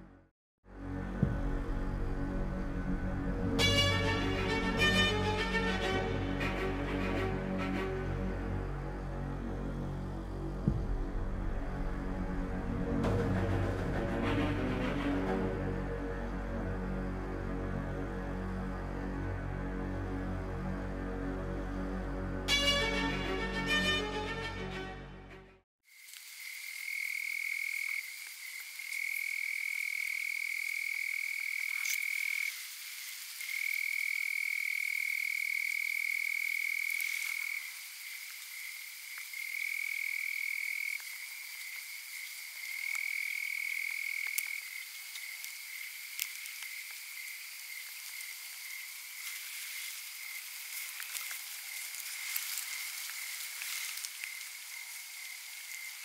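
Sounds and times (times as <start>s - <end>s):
faint ticks: 43.7s - 47.0s.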